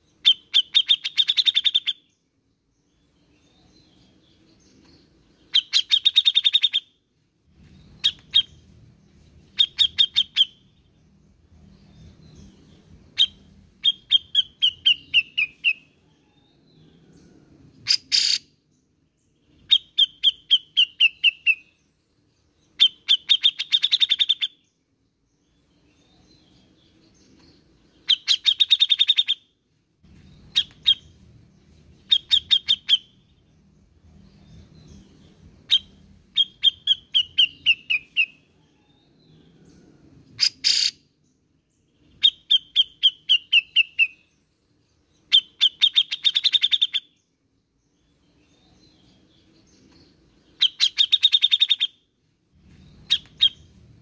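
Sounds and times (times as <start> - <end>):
bird chattering calls: 5.5 - 6.9, 17.8 - 18.5, 28.0 - 29.4, 32.1 - 33.1, 40.4 - 41.0, 45.3 - 47.1, 50.6 - 51.9, 53.0 - 53.7.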